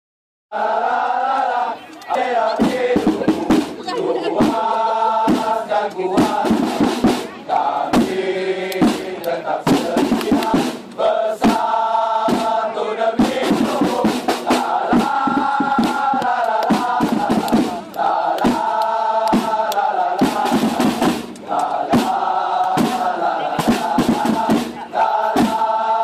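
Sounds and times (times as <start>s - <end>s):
crowd chanting in unison: 0.5s - 26.0s
sharp drum beats: 2.1s - 26.0s.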